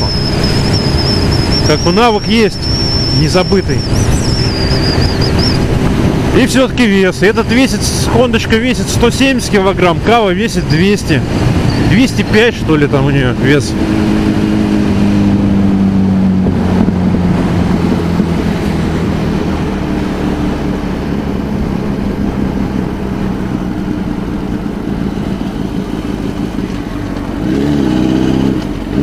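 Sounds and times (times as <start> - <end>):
wind rushing: 0.0 - 6.6, 13.2 - 26.5
motorcycle engine running: 0.0 - 29.0
road noise: 0.0 - 29.0.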